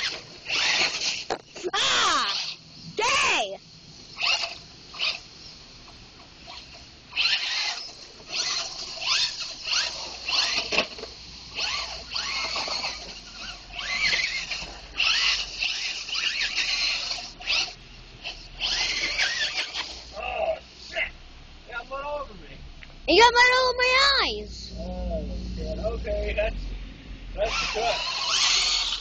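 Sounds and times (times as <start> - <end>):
toy truck motor whine revving: 0.0 - 3.5, 4.1 - 5.5, 6.4 - 21.0, 27.4 - 29.0
wheels spinning in mud: 0.0 - 21.0, 27.4 - 29.0.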